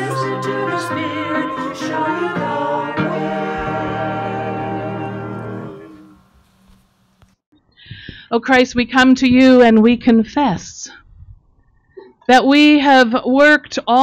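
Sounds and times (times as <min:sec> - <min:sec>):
small choir singing: 0:00.0 - 0:06.3.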